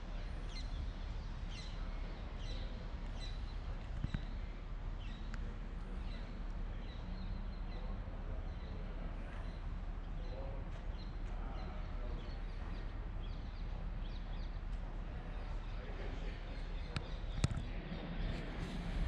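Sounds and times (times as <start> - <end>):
low rumble: 17.6 - 19.0.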